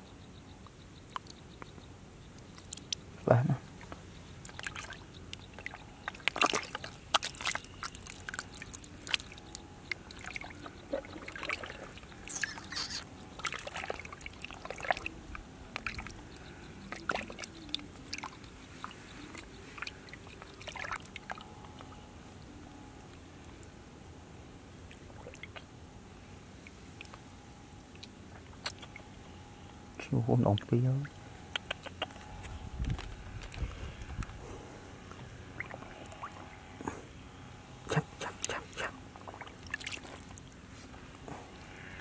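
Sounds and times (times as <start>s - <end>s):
muddy water sloshing: 2.5s - 22.0s, 35.2s - 36.8s, 37.9s - 41.9s.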